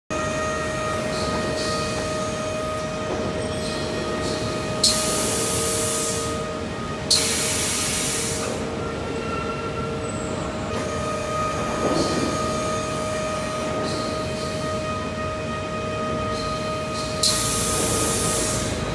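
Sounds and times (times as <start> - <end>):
conveyor machinery humming: 0.1 - 18.9
loud hiss bursts: 4.8 - 6.3, 7.1 - 8.6, 17.2 - 18.8.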